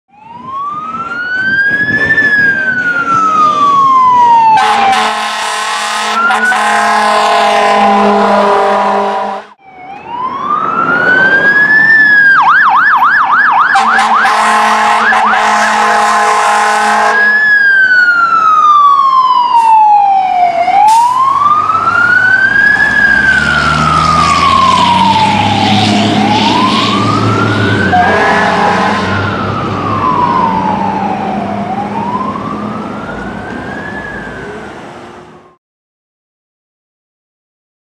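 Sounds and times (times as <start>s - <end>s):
fire engine siren wailing: 0.1s - 35.6s
truck engine rumble: 0.2s - 4.9s, 6.2s - 35.5s
long horn blasts: 4.5s - 9.6s, 13.7s - 17.4s, 27.9s - 29.3s.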